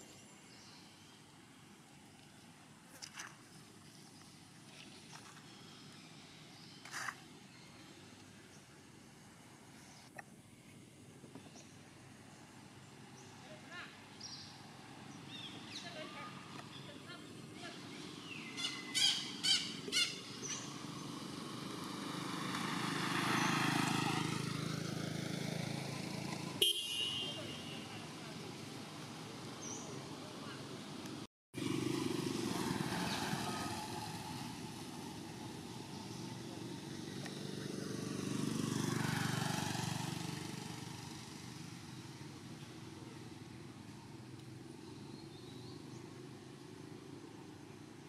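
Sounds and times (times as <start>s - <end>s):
vehicle passing by: 12.5s - 48.0s.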